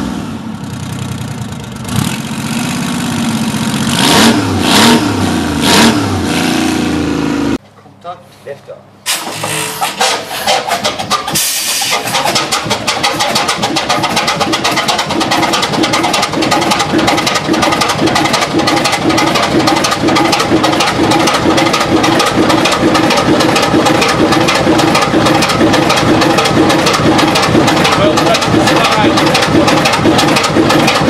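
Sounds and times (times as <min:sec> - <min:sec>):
diesel engine running: 0:00.0 - 0:07.6, 0:09.0 - 0:31.0
brief hiss: 0:11.4 - 0:12.0.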